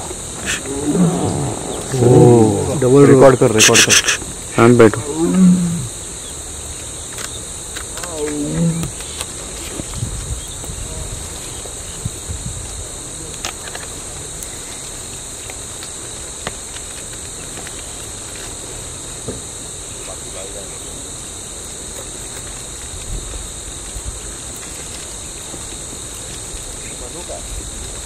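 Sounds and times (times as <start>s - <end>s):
insects droning: 0.0s - 28.0s
tiger roaring: 0.4s - 4.0s, 4.6s - 6.0s, 8.0s - 8.9s.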